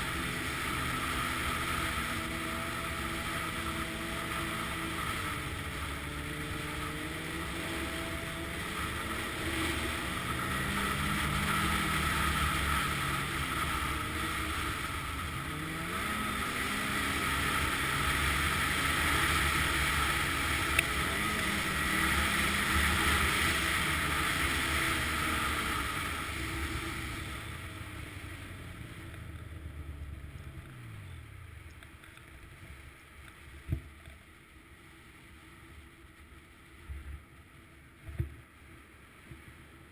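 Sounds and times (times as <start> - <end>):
snowmobile engine running: 0.0 - 31.3.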